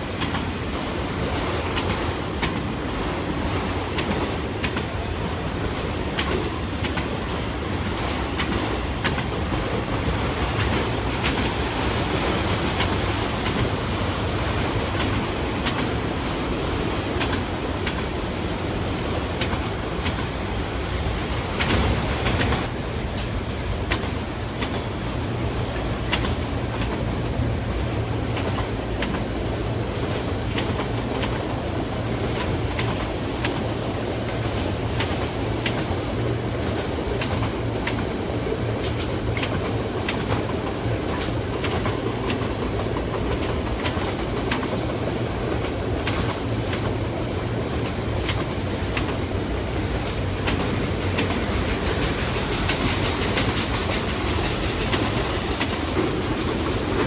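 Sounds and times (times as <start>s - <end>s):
train wheels rumbling on rail: 0.0s - 57.0s
wheels clicking over track: 47.7s - 57.0s.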